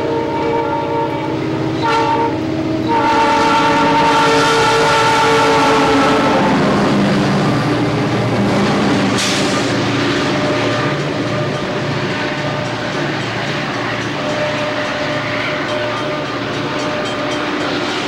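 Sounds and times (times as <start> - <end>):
locomotive air horn chord: 0.0 - 7.4
locomotive engines and wheels rumbling: 0.0 - 18.0.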